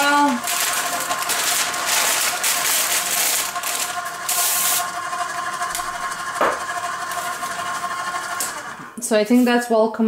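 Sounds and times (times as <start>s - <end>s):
stand mixer motor whining: 0.0s - 9.0s.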